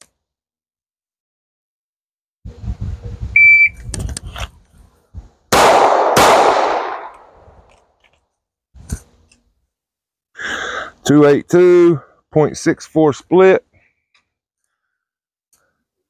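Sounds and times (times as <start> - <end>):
shot timer beep: 3.4 - 3.8
pistol shots with echo: 5.5 - 7.4.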